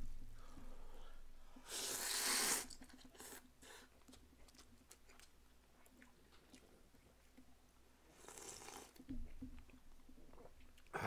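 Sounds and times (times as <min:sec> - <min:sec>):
person blowing on food: 0:01.6 - 0:03.9.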